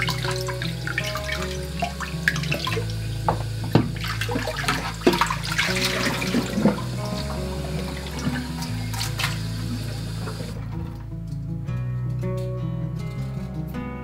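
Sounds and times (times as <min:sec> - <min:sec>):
tap water splashing in sink: 0:00.0 - 0:10.6
soft background music: 0:00.0 - 0:14.0.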